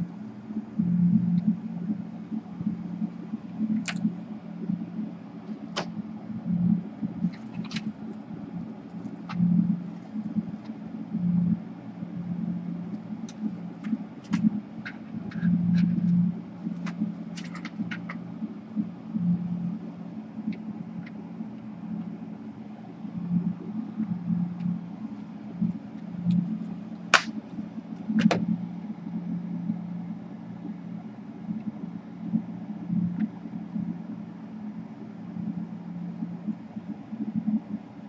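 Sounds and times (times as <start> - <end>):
low steady hum: 0.0 - 38.0.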